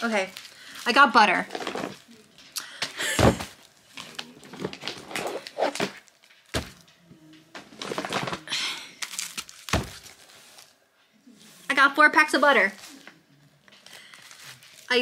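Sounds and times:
cardboard boxes thunking down: 3.0s - 3.6s, 4.5s - 6.8s, 9.7s - 10.1s.

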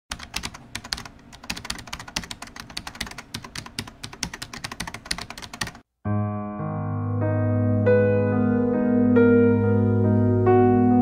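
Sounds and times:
typing on computer keyboard: 0.1s - 5.8s.

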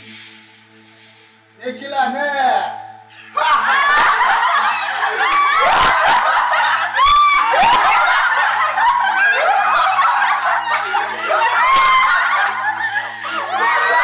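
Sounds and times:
group of people laughing: 3.2s - 14.0s.

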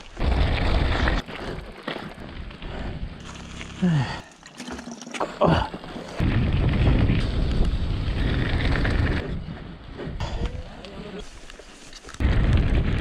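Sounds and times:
bike tyres rumbling on gravel: 0.0s - 4.4s, 5.3s - 13.0s
wind on microphone: 6.2s - 11.1s, 12.2s - 13.0s.

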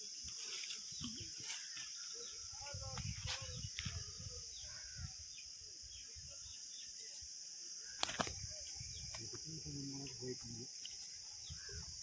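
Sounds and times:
faint cricket chirps: 0.0s - 12.0s
high-pitched insect drone: 0.0s - 12.0s
sharp clicks: 7.9s - 8.4s.

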